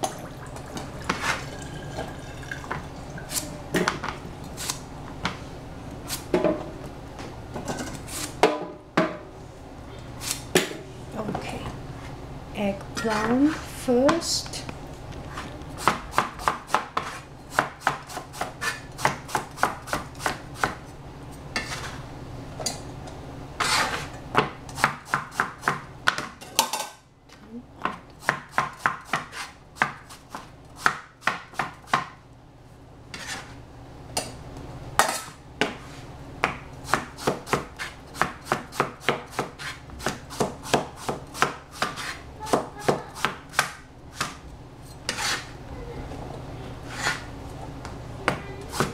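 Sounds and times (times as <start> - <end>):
cleaver chopping on cutting board: 28.2 - 32.1, 36.4 - 44.4.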